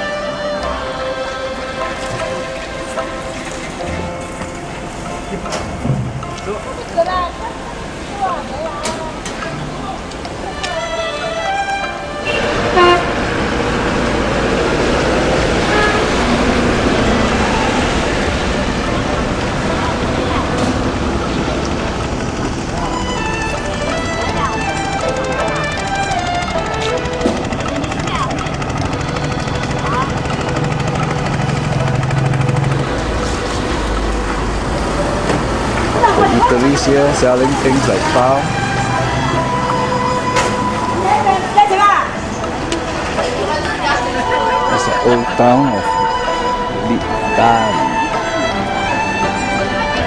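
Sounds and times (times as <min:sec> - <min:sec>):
engine hum: 0:00.0 - 0:50.0
traffic on a wet road: 0:00.0 - 0:50.0
car horn toot: 0:12.2 - 0:13.3, 0:15.6 - 0:16.4.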